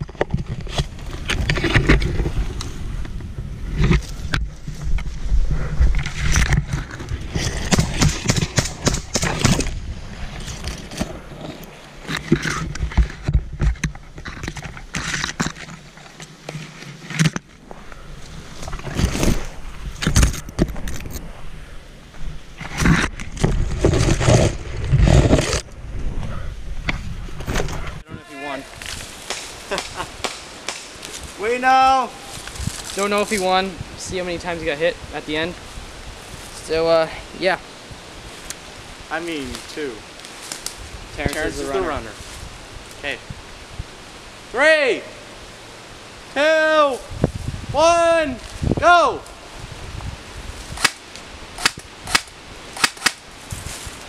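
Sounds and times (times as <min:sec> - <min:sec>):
footfalls jolting microphone: 0:00.0 - 0:17.5, 0:22.6 - 0:26.2
leaves and branches rustling: 0:00.0 - 0:54.0.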